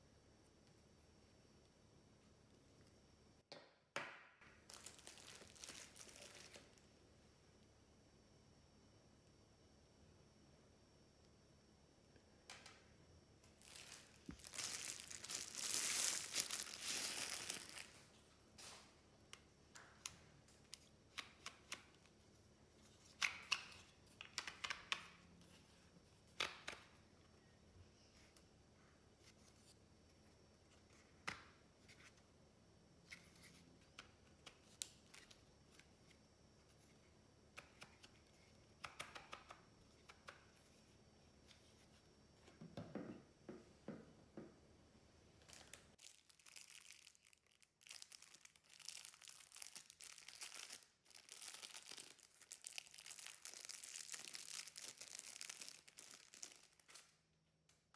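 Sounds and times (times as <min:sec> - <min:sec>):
plastic packaging crinkling and tearing: 0:04.7 - 0:06.8, 0:13.6 - 0:18.0, 0:45.4 - 0:57.1.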